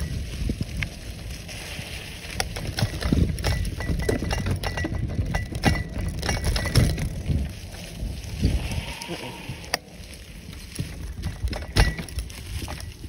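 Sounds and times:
bicycle rattling on dirt trail: 0.0 - 13.0
low rumble: 0.0 - 13.0
knocks and clicks: 2.5 - 7.1.

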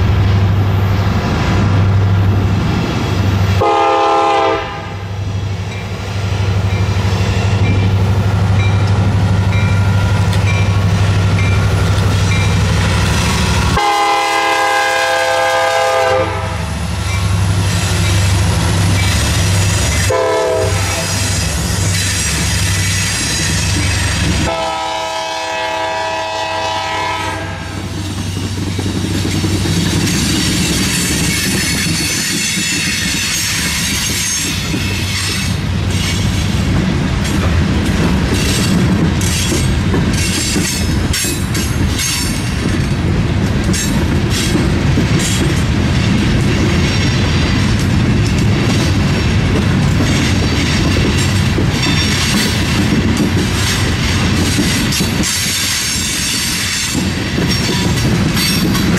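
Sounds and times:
train rumbling past: 0.0 - 58.9
locomotive air horn: 3.6 - 5.1, 13.7 - 16.7, 20.0 - 21.3, 24.4 - 27.8
wheels clicking over rail joints: 27.8 - 58.9.

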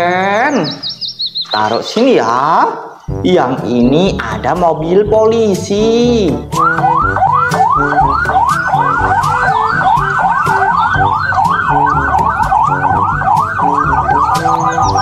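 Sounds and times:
background music with beat: 3.0 - 15.0
police siren yelp: 6.3 - 15.0.

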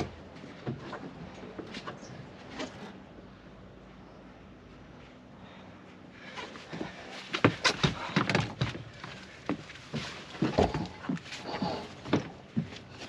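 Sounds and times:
footsteps thumping on boat deck: 6.8 - 11.3.

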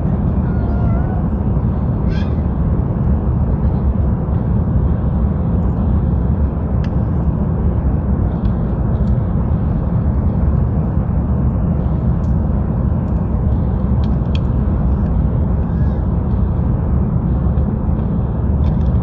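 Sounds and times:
airplane cabin rumble: 0.0 - 19.0.

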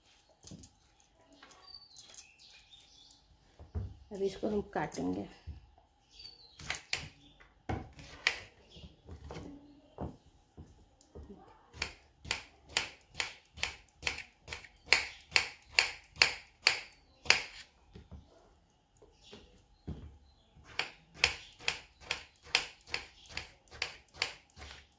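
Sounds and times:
knife chopping on wooden board: 20.6 - 24.8.

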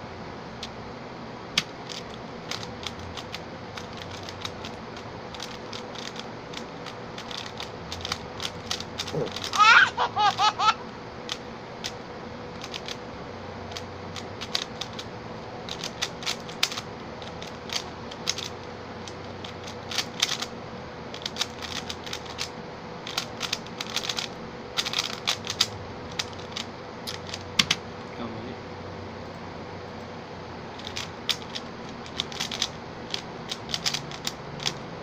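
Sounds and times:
speed cube clicking: 1.6 - 9.7, 12.6 - 13.0, 13.7 - 15.1, 15.7 - 20.5, 21.1 - 27.5, 30.8 - 34.8.

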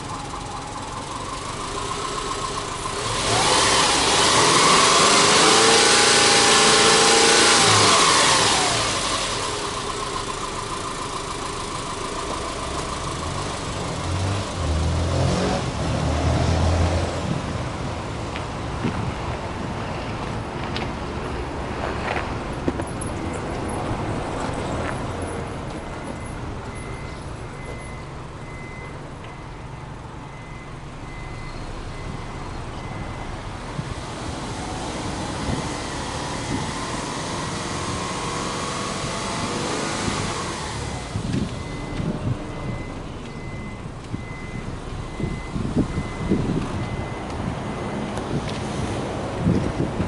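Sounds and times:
engine exhaust rumble: 0.0 - 50.0.

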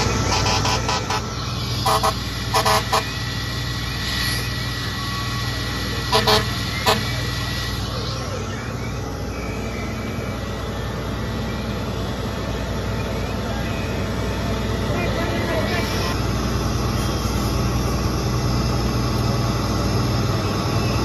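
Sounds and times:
emergency vehicle horn toots: 0.0 - 3.3, 6.0 - 7.4
fire engine idling rumble: 0.0 - 21.0.

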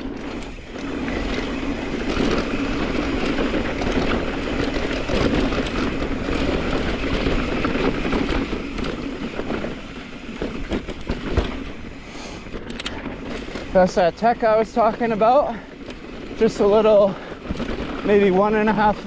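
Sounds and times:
bike tyres rumbling over rocks: 0.0 - 19.0
wind buffeting microphone: 0.0 - 19.0
sharp knocks and clicks: 10.3 - 11.8.

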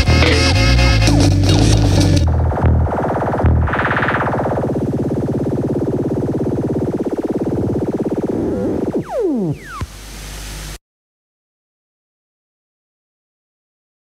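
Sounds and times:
pulsing synthesizer chord: 2.3 - 10.8
falling pitch sweeps: 2.9 - 10.8.

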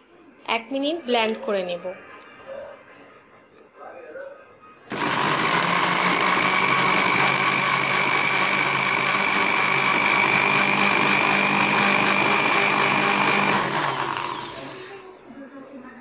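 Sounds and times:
blender motor whining: 4.9 - 15.1.

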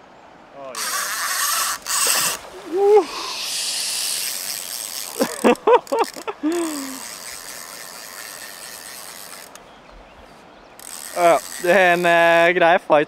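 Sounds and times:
fishing reel drag running: 0.7 - 2.4, 3.2 - 9.6, 10.8 - 12.4.

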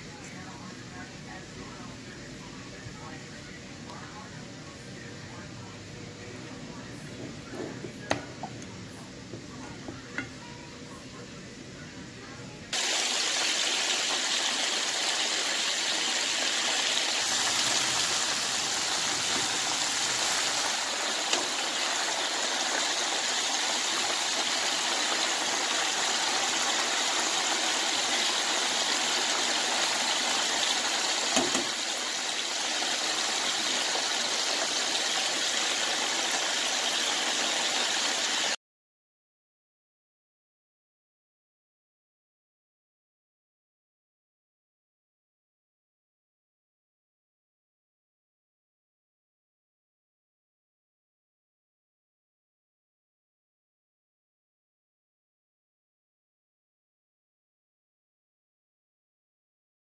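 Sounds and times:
chicken deep-frying in oil: 12.7 - 38.6.

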